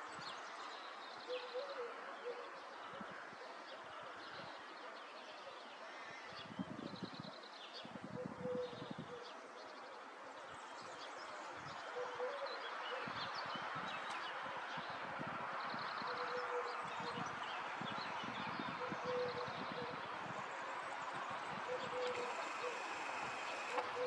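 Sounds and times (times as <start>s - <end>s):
steady outdoor background noise: 0.0s - 24.0s
small birds chirping: 15.6s - 24.0s.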